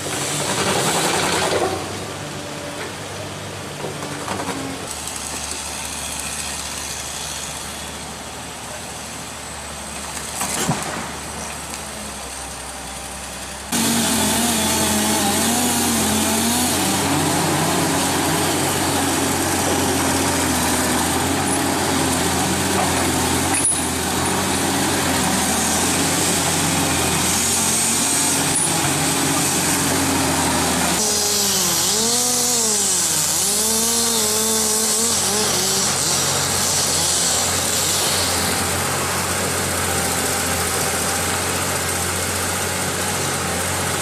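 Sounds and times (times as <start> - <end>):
chainsaw cutting a log: 0.0 - 1.9, 4.8 - 8.3, 13.7 - 44.0.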